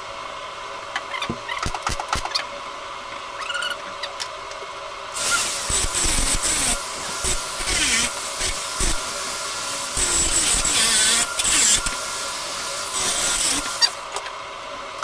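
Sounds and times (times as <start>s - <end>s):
angle grinder whine: 5.1s - 14.2s.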